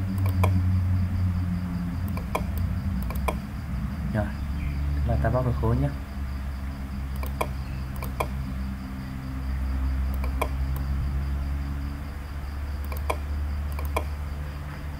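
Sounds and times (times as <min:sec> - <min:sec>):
faint high whine: 0:00.0 - 0:14.9
low electrical hum: 0:00.0 - 0:14.9
computer mouse clicks: 0:00.1 - 0:00.6, 0:02.1 - 0:03.4, 0:07.1 - 0:08.4, 0:10.1 - 0:10.9, 0:12.8 - 0:14.2.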